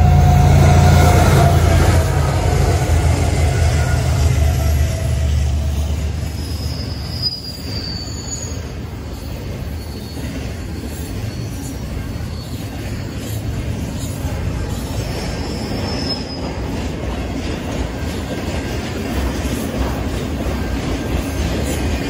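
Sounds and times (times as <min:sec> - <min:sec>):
locomotive low rumble: 0:00.0 - 0:07.1
high wheel squeal: 0:00.0 - 0:13.5, 0:14.6 - 0:16.7
train wheels rumbling on rails: 0:00.0 - 0:22.0.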